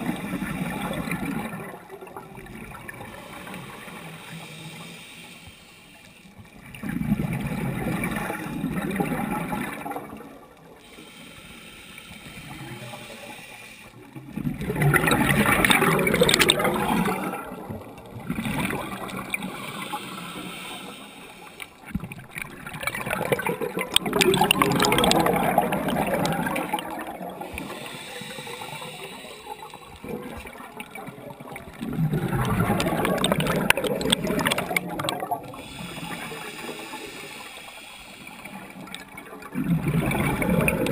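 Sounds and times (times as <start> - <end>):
underwater bubbles gurgling: 0.0 - 40.9
diver breathing: 3.0 - 6.3, 10.8 - 14.1, 19.0 - 21.8, 24.0 - 30.5, 35.4 - 38.8.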